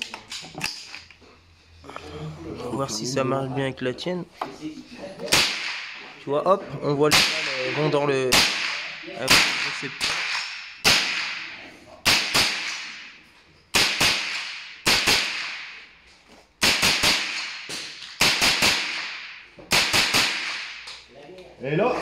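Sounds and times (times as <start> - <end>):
rifle shots echoing: 7.1 - 13.1, 13.7 - 15.8, 16.6 - 20.9.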